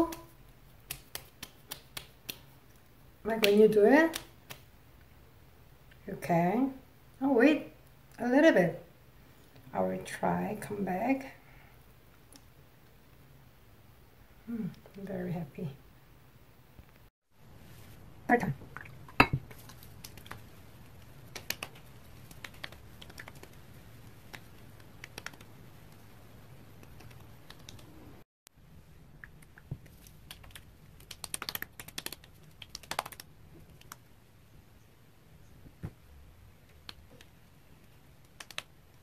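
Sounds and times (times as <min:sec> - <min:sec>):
fingertips tapping skin: 0:00.0 - 0:02.8, 0:19.5 - 0:20.5, 0:21.2 - 0:25.5, 0:29.2 - 0:34.0, 0:38.2 - 0:38.7.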